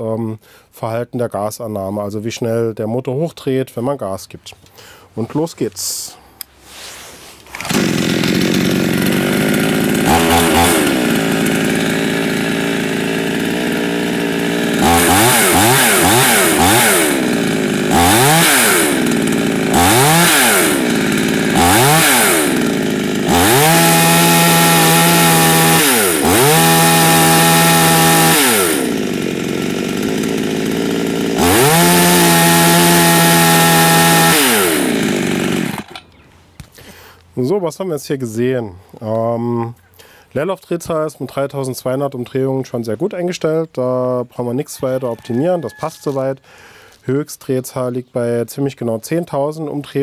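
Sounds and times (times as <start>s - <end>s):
chainsaw idling and revving: 7.5s - 36.0s.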